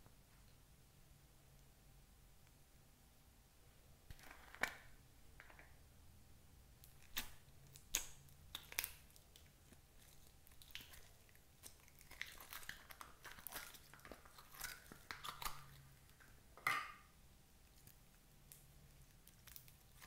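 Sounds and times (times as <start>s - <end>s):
slime crackling and popping: 6.8s - 16.3s, 17.7s - 20.0s.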